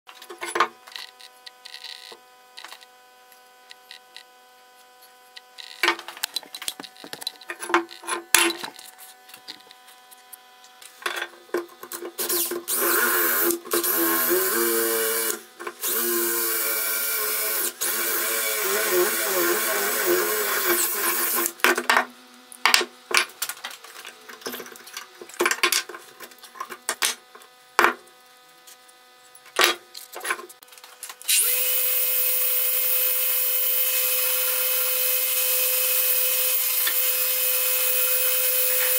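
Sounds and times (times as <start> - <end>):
cordless drill boring wood: 12.2 - 21.6, 31.3 - 38.9.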